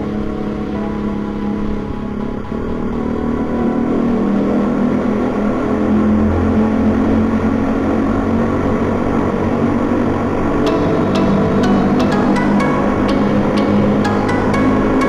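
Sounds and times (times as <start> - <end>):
road and wind noise: 0.0 - 15.0
music with percussive strokes: 10.7 - 15.0.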